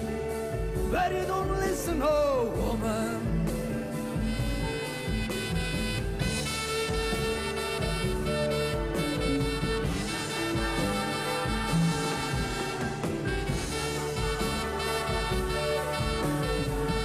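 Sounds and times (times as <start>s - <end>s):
drums: 0.0s - 17.0s
saxophone melody: 4.0s - 17.0s.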